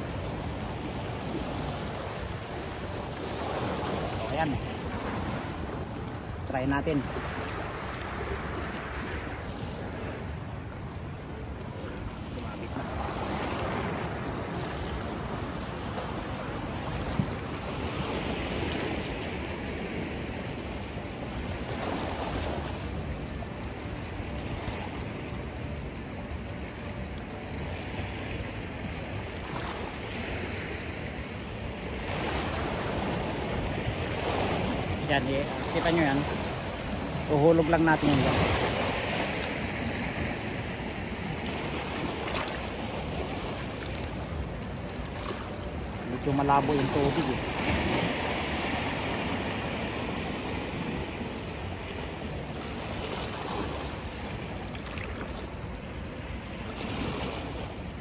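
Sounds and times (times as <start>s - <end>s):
sea water lapping: 0.0s - 58.0s.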